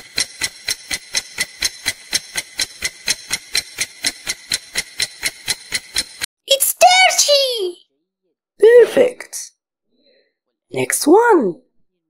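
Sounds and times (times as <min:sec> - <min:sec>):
clock ticking: 0:00.0 - 0:06.3.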